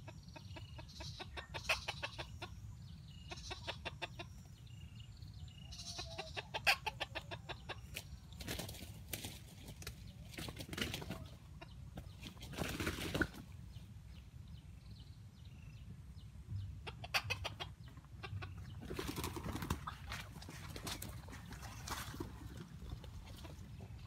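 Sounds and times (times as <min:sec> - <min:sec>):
junglefowl clucking: 0:00.0 - 0:04.6, 0:05.7 - 0:08.8, 0:16.8 - 0:24.0
wings fluttering: 0:07.9 - 0:11.4, 0:12.0 - 0:13.5, 0:18.6 - 0:23.8.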